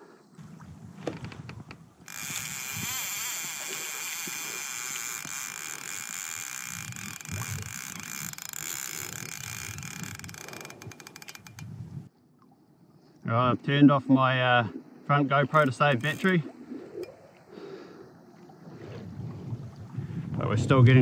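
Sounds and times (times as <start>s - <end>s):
water hissing along hull: 2.0s - 11.2s, 15.6s - 20.4s.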